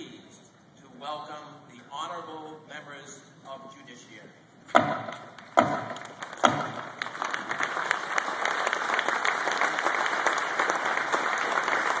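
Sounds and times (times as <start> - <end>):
crowd applauding: 5.9 - 12.0.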